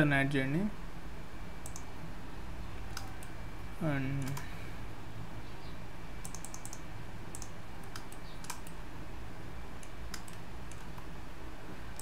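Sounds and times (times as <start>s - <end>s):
low background hum: 0.0s - 12.0s
mouse and keyboard clicks: 1.6s - 1.9s, 2.9s - 3.3s, 4.2s - 4.5s, 6.2s - 8.8s, 9.8s - 11.1s.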